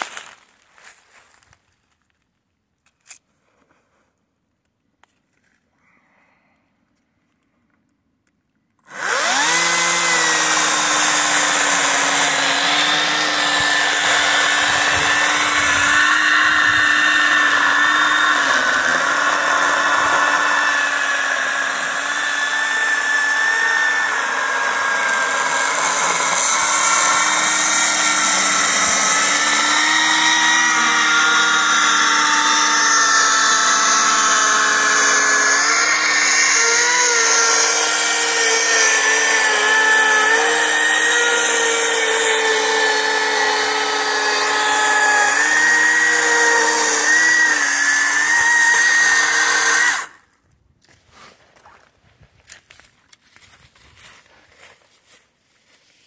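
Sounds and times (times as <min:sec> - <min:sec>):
electric chainsaw cutting log: 0:08.8 - 0:50.3.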